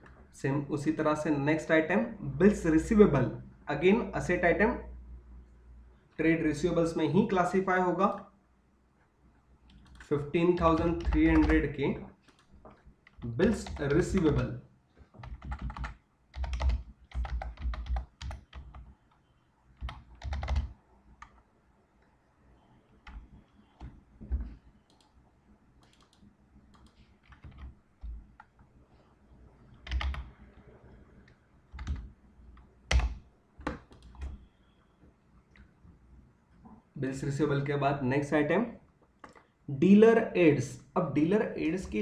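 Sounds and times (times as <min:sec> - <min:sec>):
typing on computer keyboard: 0:09.7 - 0:14.4, 0:15.1 - 0:21.4, 0:23.0 - 0:25.2, 0:25.8 - 0:28.6, 0:29.8 - 0:30.4, 0:31.3 - 0:34.5, 0:39.2 - 0:39.5.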